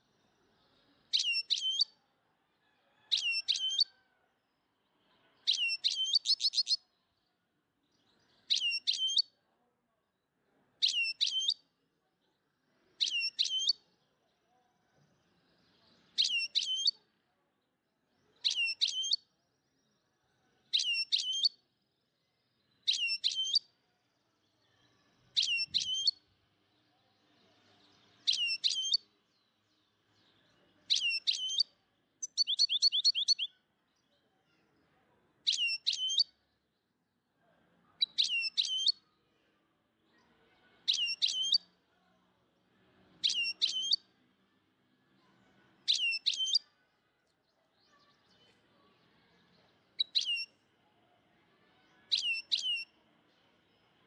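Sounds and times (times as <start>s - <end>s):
bird-like whistled chirp: 1.1s - 1.9s, 5.5s - 6.8s, 8.5s - 9.2s, 10.8s - 11.6s, 13.0s - 13.8s, 16.2s - 17.0s, 18.5s - 19.3s, 20.8s - 21.6s, 22.9s - 23.7s, 25.4s - 26.2s, 28.3s - 29.0s, 30.9s - 33.6s, 38.0s - 39.0s, 40.9s - 41.6s, 43.2s - 44.0s, 50.0s - 50.5s, 52.1s - 52.9s.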